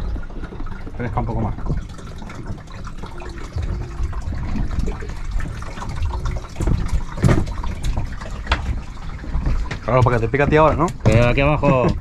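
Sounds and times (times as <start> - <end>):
low rumble: 0.0 - 7.6
water lapping against boat: 0.0 - 12.0
sharp splashes or knocks: 1.6 - 11.4.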